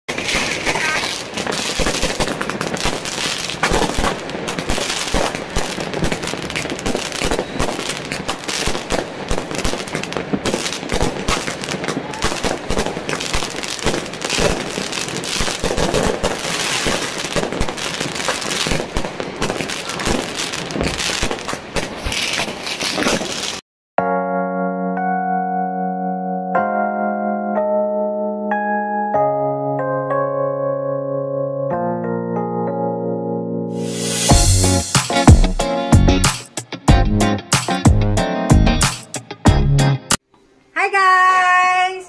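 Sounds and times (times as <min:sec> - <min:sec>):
fireworks bangs and crackling: 0:00.1 - 0:23.6
piano music: 0:24.0 - 0:40.2.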